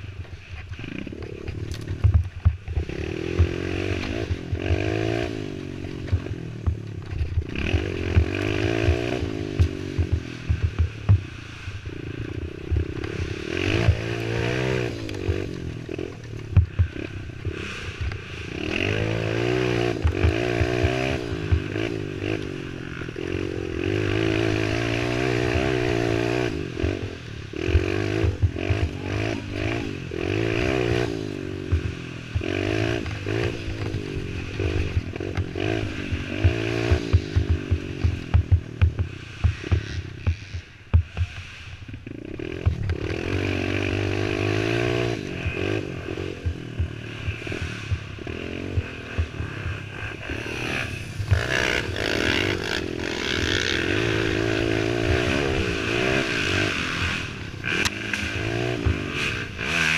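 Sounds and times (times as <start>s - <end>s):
knocks and rattles over ground: 0.0s - 59.9s
quad engine revving: 0.7s - 59.9s.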